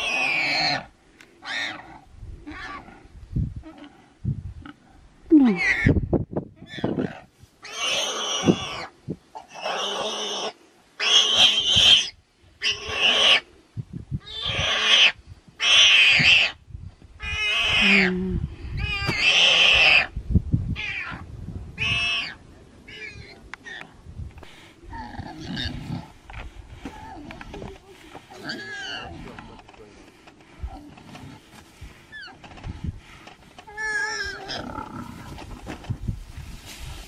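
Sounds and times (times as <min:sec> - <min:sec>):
warthog squealing: 0:28.4 - 0:29.2, 0:33.7 - 0:35.2.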